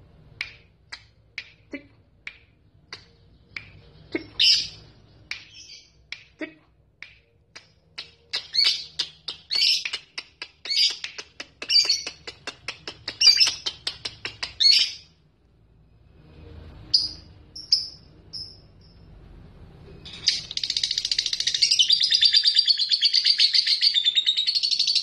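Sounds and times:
bird chattering chirps: 20.1s - 25.0s.

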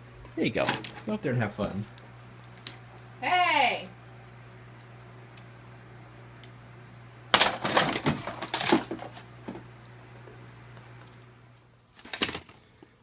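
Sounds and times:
small objects clattering on a shelf: 7.3s - 9.7s, 12.0s - 12.7s.

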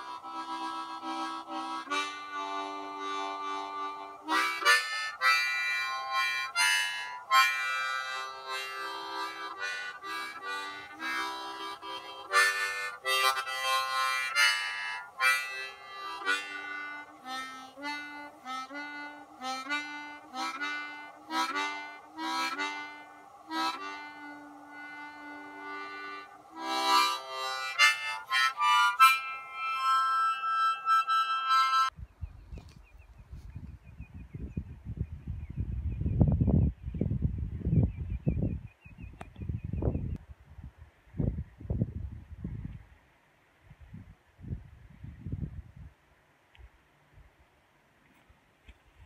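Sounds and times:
harmonica tune: 0.0s - 32.0s.

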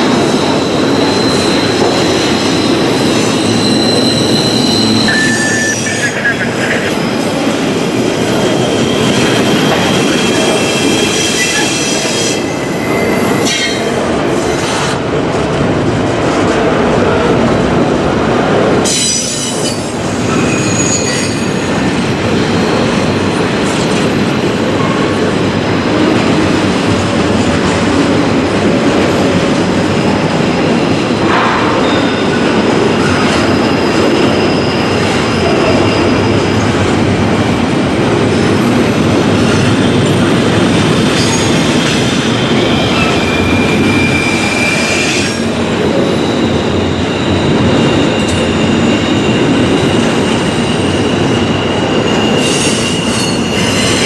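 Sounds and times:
train wheels rumbling on rails: 0.0s - 54.0s
high-pitched wheel squeal: 0.2s - 6.3s, 20.4s - 21.8s, 41.2s - 45.4s, 46.2s - 54.0s.

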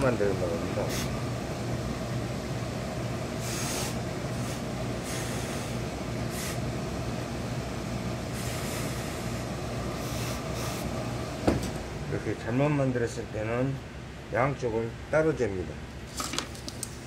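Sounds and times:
steady low hum: 0.0s - 17.0s
steam iron hissing: 3.4s - 6.7s, 8.3s - 10.9s.

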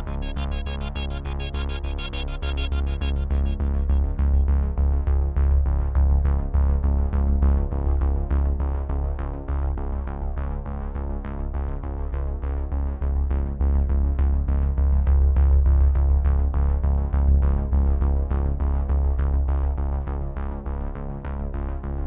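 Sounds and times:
repeated notes over deep bass: 0.0s - 6.2s.

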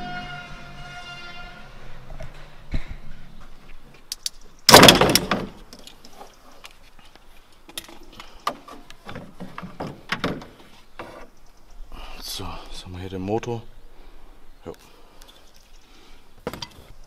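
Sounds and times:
loud plastic clatter: 4.7s - 5.8s.

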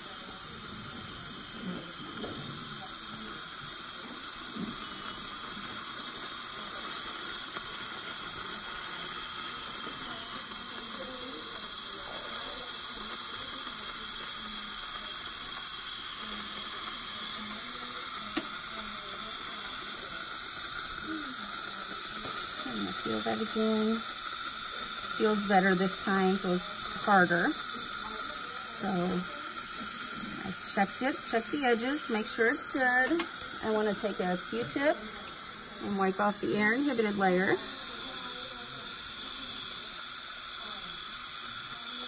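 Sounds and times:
steady hiss: 0.0s - 42.0s.

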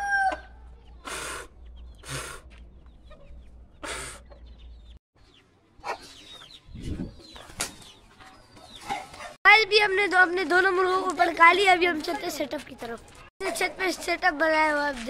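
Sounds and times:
roosters crowing: 0.0s - 0.6s
chickens clucking: 0.2s - 9.4s.

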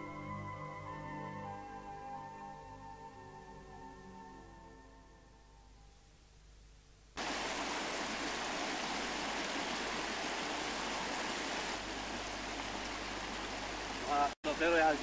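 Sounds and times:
brook running over rocks: 7.2s - 15.0s.

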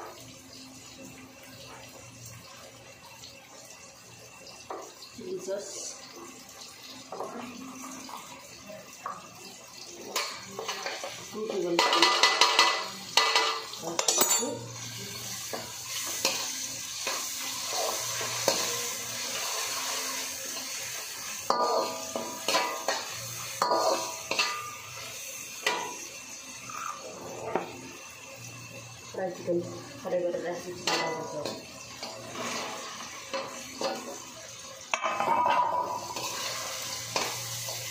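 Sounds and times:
metal spoon scraping a pan: 11.8s - 27.8s, 30.7s - 34.2s, 34.9s - 37.9s.

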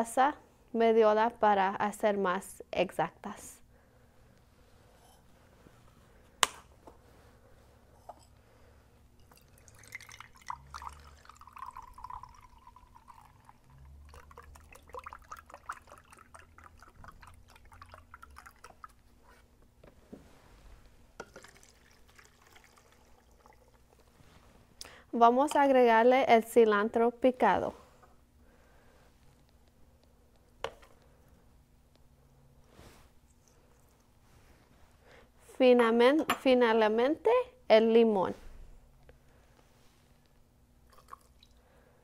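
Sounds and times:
broth pouring and splashing: 9.4s - 19.0s, 21.3s - 24.0s.

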